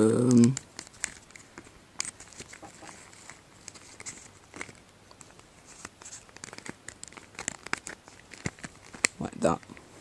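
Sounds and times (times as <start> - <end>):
plastic goggles clicking and scraping: 0.0 - 9.8.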